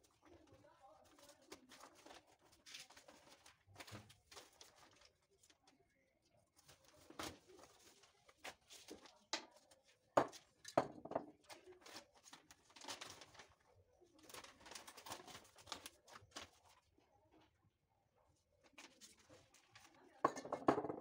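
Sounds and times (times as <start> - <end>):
paper rustling and crinkling: 0.0 - 10.6, 11.3 - 17.0, 18.6 - 20.1
knocks on a worktable: 10.2 - 11.3, 20.3 - 21.0.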